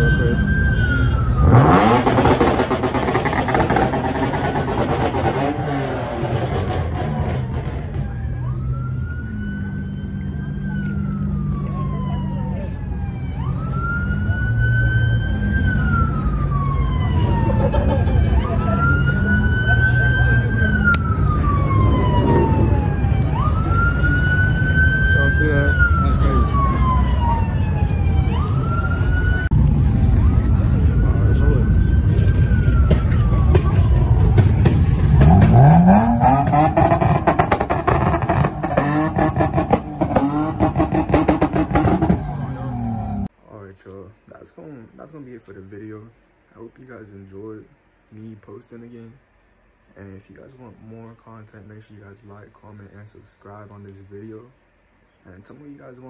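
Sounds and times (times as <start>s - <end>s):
police siren wailing: 0.0s - 43.3s
car engine revving: 1.3s - 9.7s, 34.4s - 43.3s.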